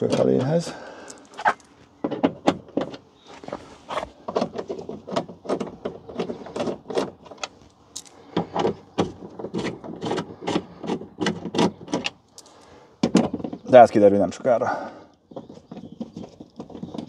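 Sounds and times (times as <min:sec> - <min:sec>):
hand tool clicks and rattles: 0:04.3 - 0:13.6.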